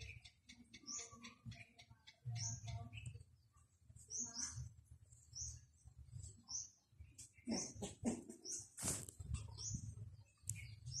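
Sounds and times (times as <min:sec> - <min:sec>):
squeaky bird calls: 0:00.0 - 0:03.1
small birds chirping: 0:00.0 - 0:11.0
scratchy rustle: 0:08.8 - 0:09.4.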